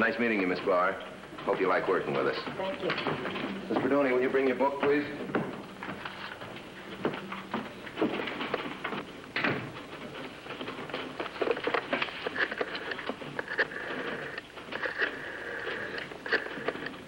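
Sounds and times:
typewriters clattering: 0.0 - 17.0.

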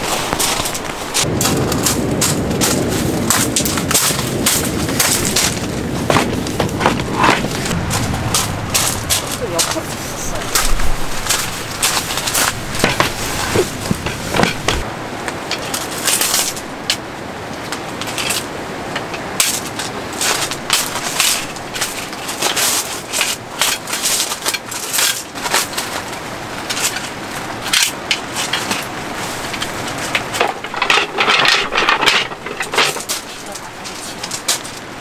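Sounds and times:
footsteps on gravel: 0.0 - 14.9
folding table legs knocking: 10.6 - 14.8, 29.5 - 34.8.

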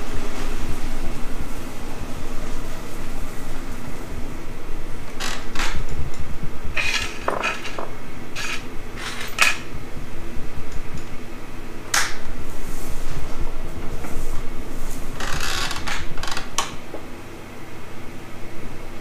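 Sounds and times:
steady low hum: 0.0 - 19.0
metal tools clinking on table: 6.8 - 9.7.

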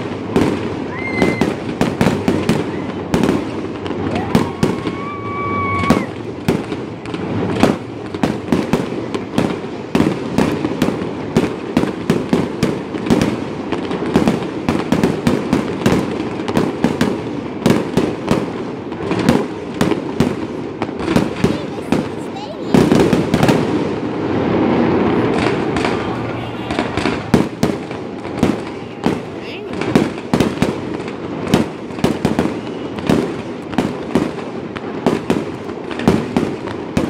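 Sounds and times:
fireworks bangs and crackles: 0.0 - 37.0
firework whistle: 0.7 - 3.4, 4.0 - 6.4, 32.1 - 33.4.

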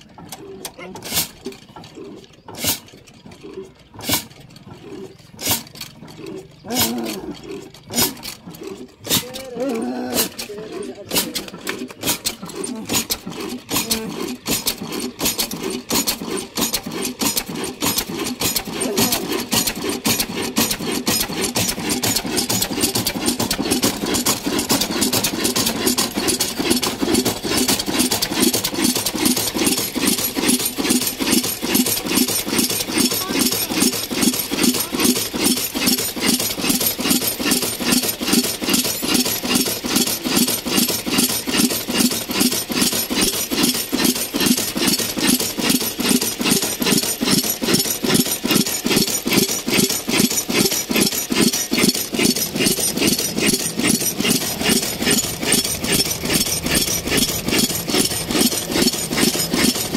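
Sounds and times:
diesel engine thudding exhaust: 1.1 - 9.4, 51.4 - 59.9.

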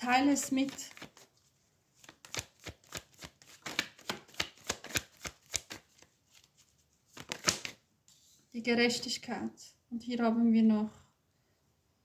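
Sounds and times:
cards being shuffled: 0.4 - 8.3.

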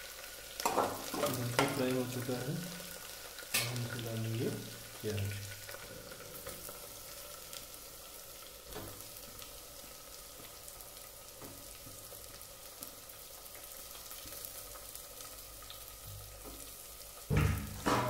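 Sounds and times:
onions sizzling in oil: 0.0 - 18.0.

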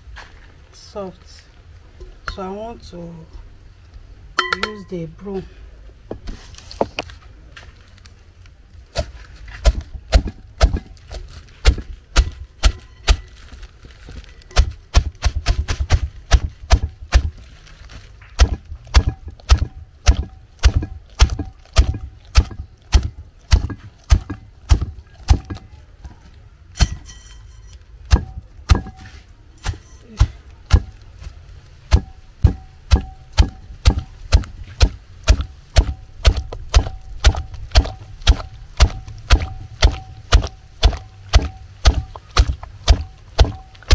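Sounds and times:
sticks knocking against a pot: 4.4 - 4.9, 18.2 - 25.7, 28.1 - 31.1, 31.9 - 43.9.

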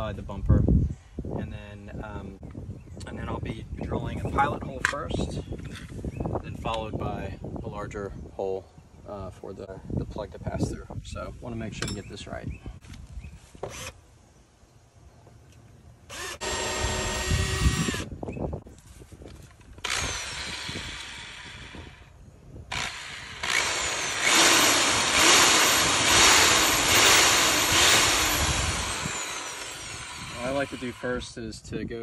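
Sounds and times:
electric drill drilling: 16.1 - 18.1, 19.8 - 22.1, 22.7 - 31.2
hole saw cutting plastic: 22.7 - 31.2.

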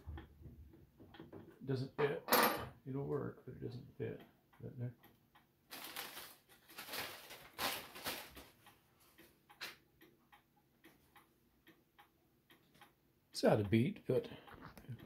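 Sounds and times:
clock ticking unevenly: 0.0 - 2.0, 2.9 - 5.7, 8.5 - 15.0.

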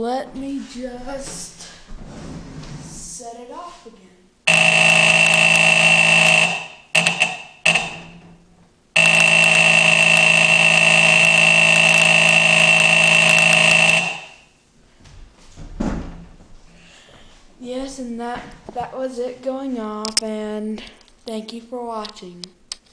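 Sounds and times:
fire alarm horn buzzing: 4.5 - 8.2, 9.0 - 14.6.

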